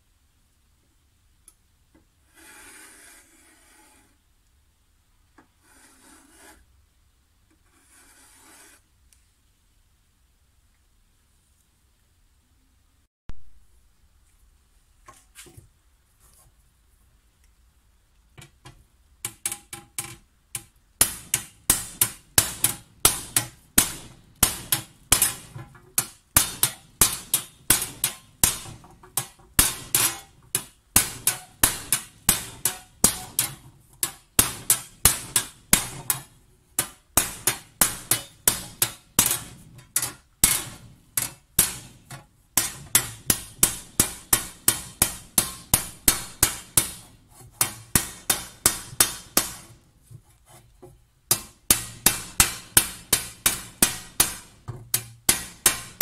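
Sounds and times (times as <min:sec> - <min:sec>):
hammer striking copper sheet: 0:19.2 - 0:49.8, 0:51.3 - 0:56.0.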